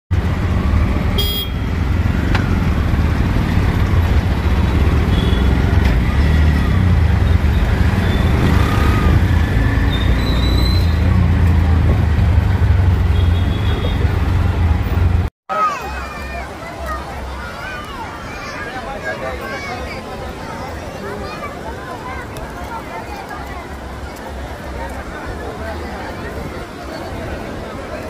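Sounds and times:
road noise low rumble: 0:00.1 - 0:15.3, 0:16.0 - 0:28.0
vehicle horn toots: 0:01.2 - 0:01.7, 0:05.0 - 0:05.6, 0:13.0 - 0:14.1.

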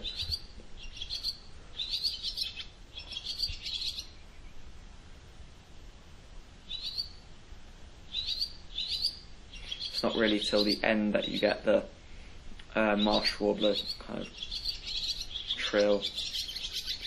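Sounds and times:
warbler singing high quick notes: 0:00.0 - 0:04.3, 0:06.7 - 0:07.2, 0:08.1 - 0:11.6, 0:12.8 - 0:17.0.

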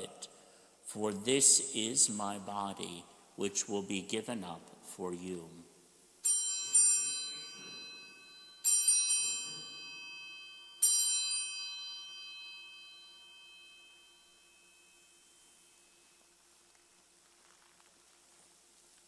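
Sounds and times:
altar bells ringing: 0:06.2 - 0:16.2.

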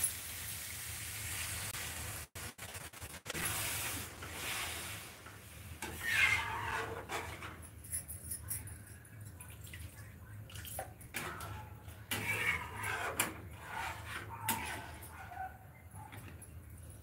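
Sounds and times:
metal spatula scraping pan: 0:03.4 - 0:08.0, 0:11.1 - 0:15.6.

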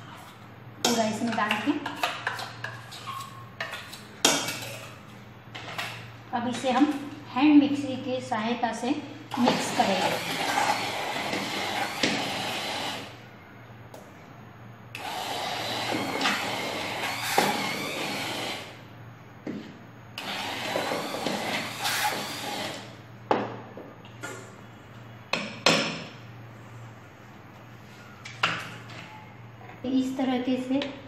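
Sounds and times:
immersion blender whirring: 0:09.3 - 0:13.2, 0:15.0 - 0:18.8, 0:20.2 - 0:23.0.

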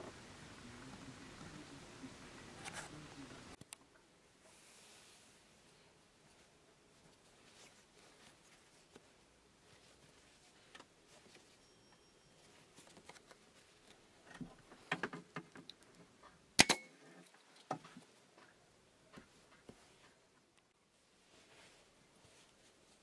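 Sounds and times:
sharp loud snap: 0:16.6 - 0:16.9.

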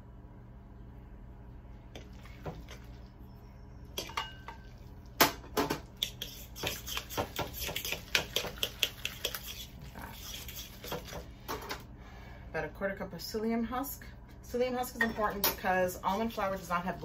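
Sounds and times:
fork scraping mixing bowl: 0:06.0 - 0:11.3.

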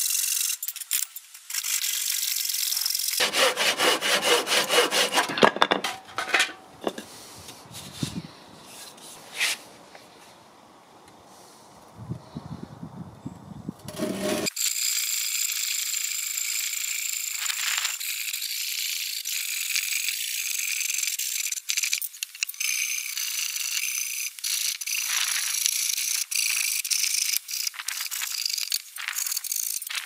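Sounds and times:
hand saw cutting timber: 0:03.2 - 0:06.0, 0:13.9 - 0:14.6.

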